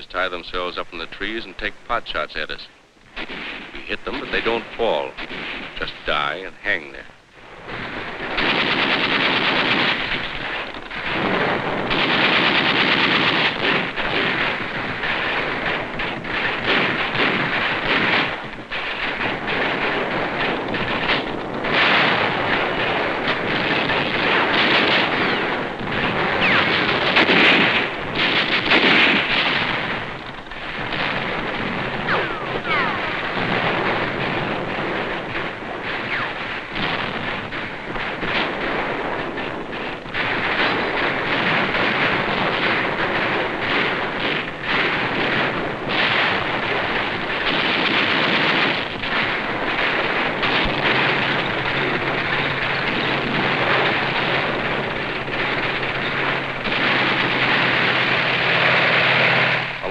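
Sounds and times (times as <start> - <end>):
film soundtrack hiss: 0.0 - 59.9
rifle and machine-gun fire: 3.2 - 59.9.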